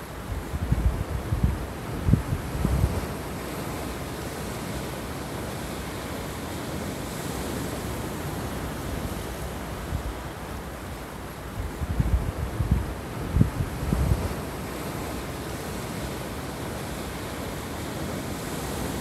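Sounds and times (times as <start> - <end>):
wind buffeting microphone: 0.3 - 4.8, 11.5 - 17.2.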